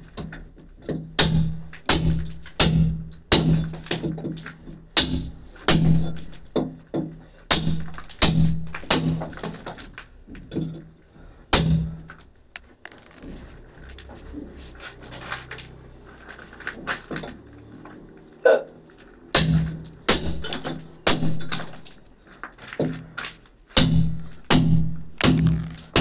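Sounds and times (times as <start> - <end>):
hammer striking chisel into brick: 0.2 - 9.7, 11.5 - 12.1, 19.3 - 21.9, 23.8 - 26.0.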